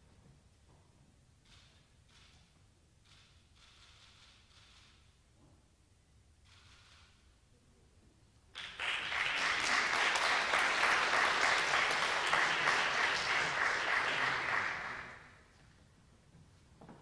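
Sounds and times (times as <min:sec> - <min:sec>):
audience applauding: 0:08.6 - 0:15.4.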